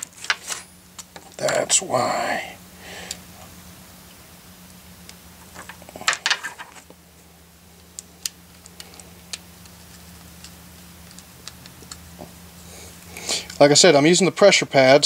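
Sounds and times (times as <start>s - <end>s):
steady low hum: 0.0s - 15.0s
small parts clicking and rattling: 5.4s - 6.9s, 7.8s - 12.2s.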